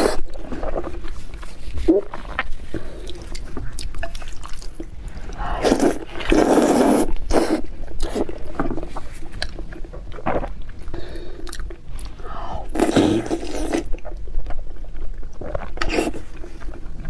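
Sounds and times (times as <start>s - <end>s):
noodles slurped: 0.0s - 8.9s, 10.2s - 14.0s.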